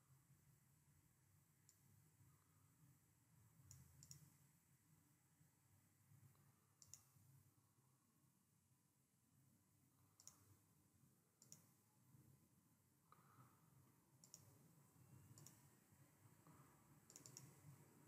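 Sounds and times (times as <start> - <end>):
computer mouse clicks: 1.7 - 1.9, 3.6 - 4.4, 6.3 - 7.3, 10.2 - 10.6, 11.4 - 11.8, 14.2 - 14.7, 15.3 - 15.7, 16.4 - 17.8.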